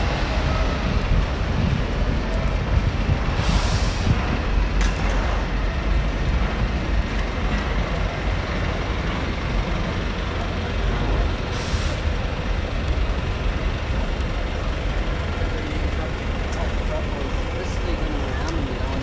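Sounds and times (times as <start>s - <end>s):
traffic rumble: 0.0s - 19.0s
air brakes hissing: 3.3s - 4.3s, 11.5s - 12.2s.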